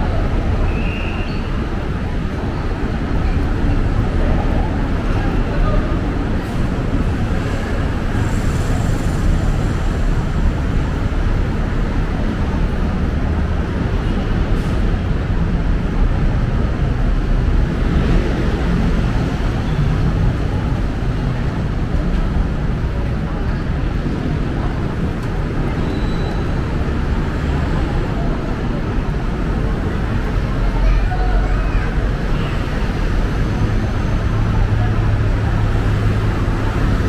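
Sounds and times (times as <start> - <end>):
road traffic rumble: 0.0 - 37.0
indistinct voices: 17.8 - 37.0.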